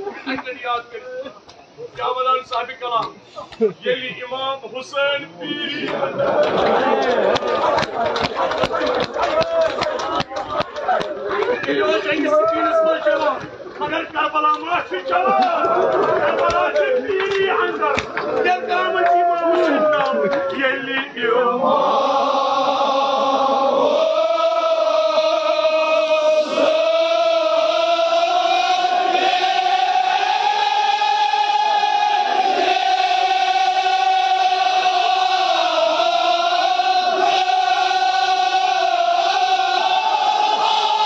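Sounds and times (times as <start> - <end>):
crowd of men chanting: 15.1 - 41.0.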